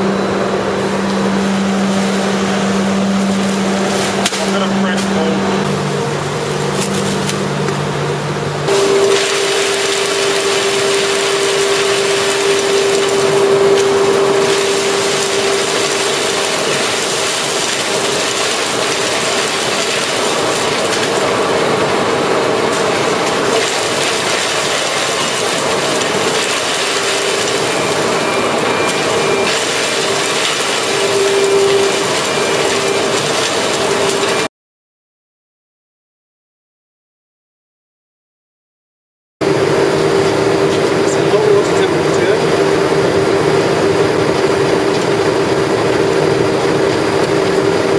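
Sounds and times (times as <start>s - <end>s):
machine hum: 0.0s - 34.5s, 39.4s - 47.9s
machinery rattling: 0.5s - 34.5s.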